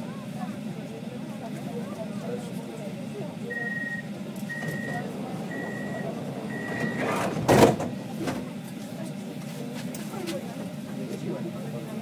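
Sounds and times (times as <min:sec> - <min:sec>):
low rumble of tram: 0:00.0 - 0:12.0
short high warning beeps: 0:03.5 - 0:07.2
tram doors shutting thump: 0:04.1 - 0:08.7.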